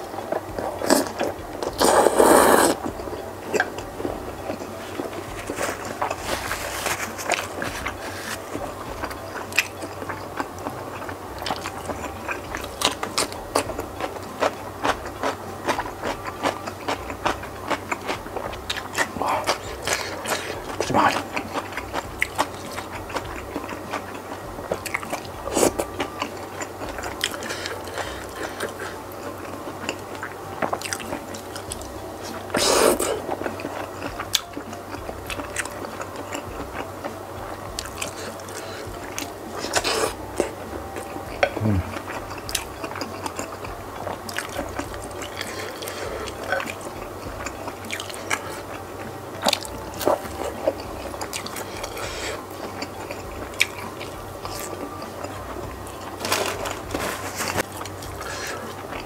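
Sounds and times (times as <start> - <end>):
close chewing and biting: 0.0 - 59.0.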